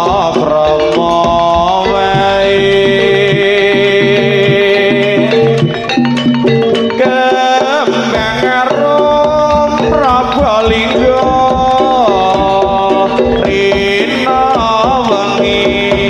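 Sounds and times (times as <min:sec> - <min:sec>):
hand drums beating: 0:00.0 - 0:16.0
high melody line: 0:00.0 - 0:16.0.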